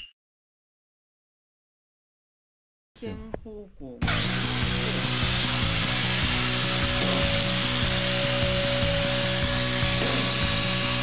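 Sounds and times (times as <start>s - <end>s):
background music: 4.0s - 11.0s.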